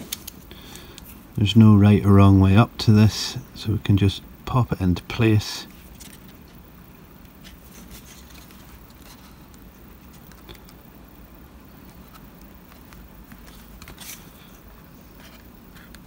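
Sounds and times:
low steady hum: 0:00.0 - 0:16.0
fingers handling plastic card: 0:07.2 - 0:10.8, 0:11.8 - 0:16.0.

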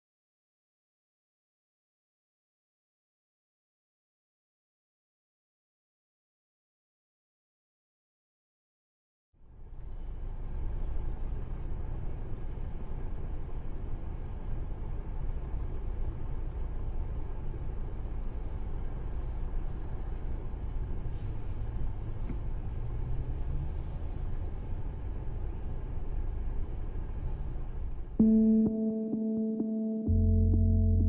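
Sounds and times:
car engine and road noise: 0:09.4 - 0:31.0.

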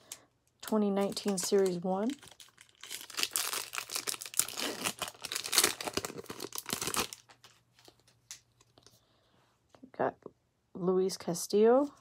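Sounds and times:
plastic wrapper crinkling and tearing: 0:00.0 - 0:08.9
cards rustling: 0:00.1 - 0:09.0.

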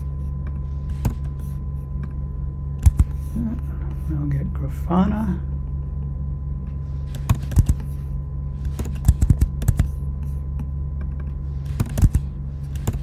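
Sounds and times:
steady low hum: 0:00.0 - 0:13.0
computer keyboard keys clicking: 0:08.8 - 0:09.9.

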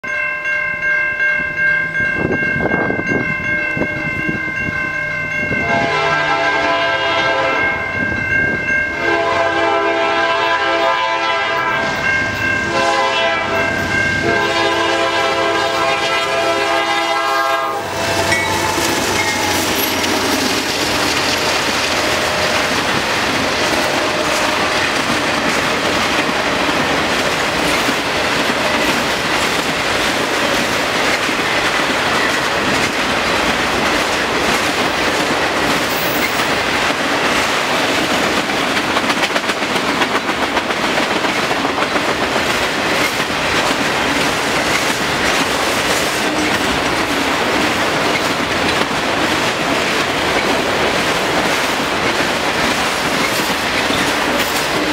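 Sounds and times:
crossing signal bells ringing: 0:00.0 - 0:37.0
train horn blasts: 0:05.6 - 0:08.0, 0:08.9 - 0:22.6, 0:23.9 - 0:24.9
train wheels clacking on rail joints: 0:08.6 - 0:54.9.

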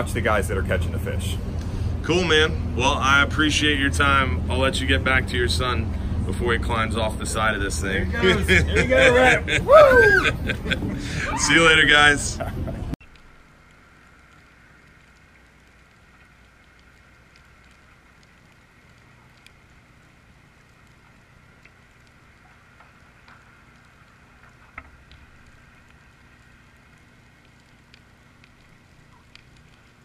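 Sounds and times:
low hum: 0:00.0 - 0:30.0
light ticks: 0:13.0 - 0:30.0.

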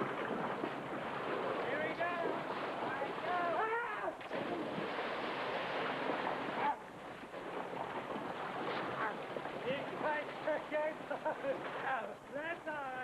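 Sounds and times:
child splashing in water: 0:00.0 - 0:06.8.

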